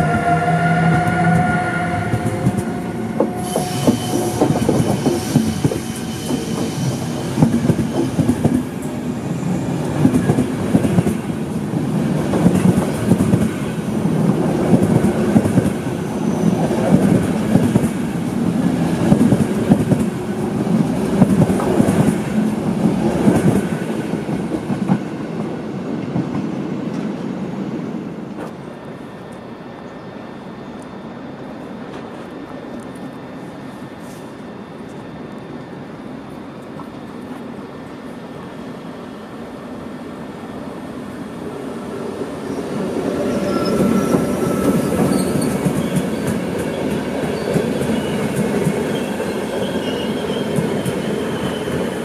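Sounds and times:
wheel squeal: 0:00.8 - 0:06.9, 0:43.2 - 0:46.3
train wheels clicking over rail joints: 0:02.4 - 0:09.0.

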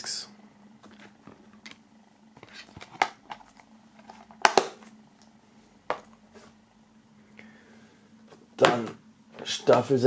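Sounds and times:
plastic case rustling: 0:02.4 - 0:04.9.

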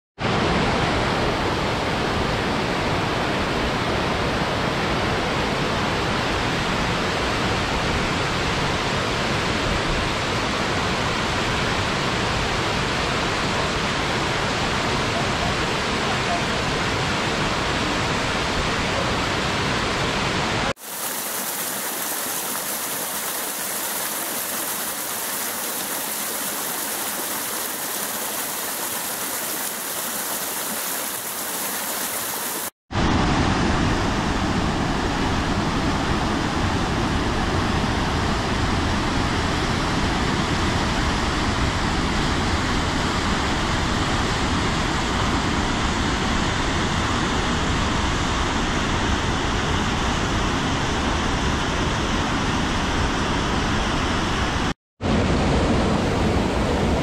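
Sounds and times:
waterfall rushing: 0:00.2 - 0:34.7.

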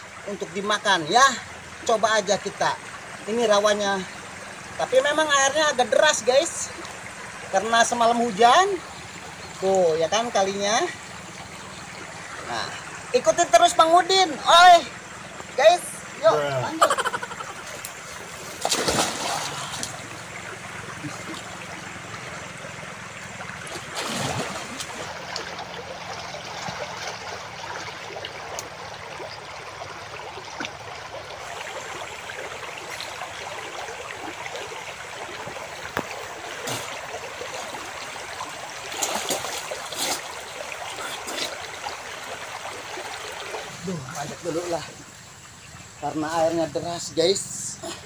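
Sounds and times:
river water running: 0:00.0 - 0:48.0
person splashing in water: 0:17.7 - 0:21.6, 0:23.6 - 0:28.8, 0:36.0 - 0:37.9, 0:38.8 - 0:42.0.

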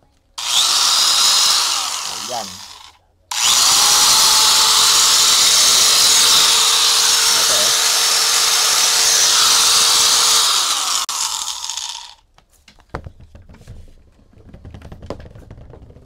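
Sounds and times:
angle grinder whirring: 0:00.4 - 0:12.2.

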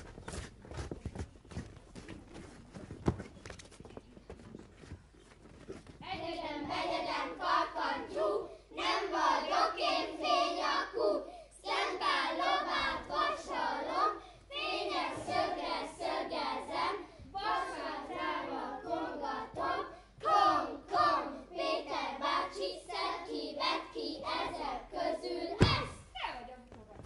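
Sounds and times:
footsteps on wooden stage: 0:00.0 - 0:06.8, 0:25.6 - 0:27.0
children singing together: 0:06.1 - 0:25.9.

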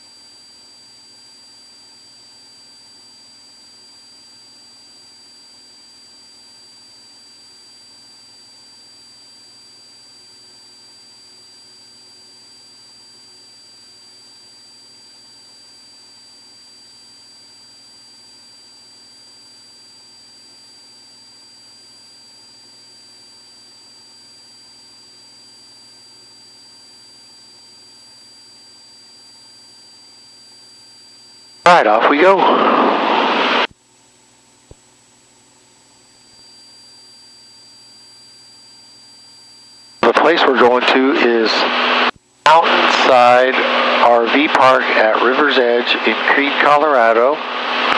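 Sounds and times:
electrical hiss with high whine: 0:12.6 - 0:47.9.

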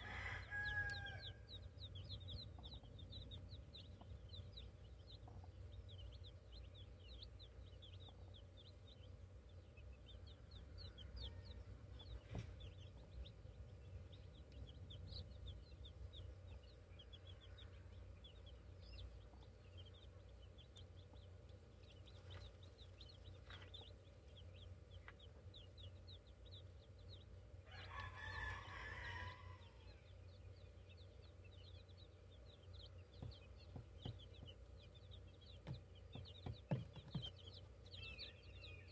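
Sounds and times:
rooster crowing: 0:00.0 - 0:01.5, 0:27.7 - 0:29.9
chicks peeping: 0:00.0 - 0:38.9.

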